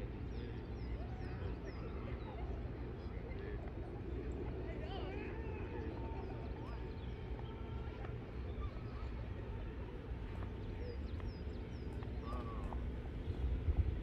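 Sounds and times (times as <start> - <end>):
steady low rumble: 9.2 - 14.0.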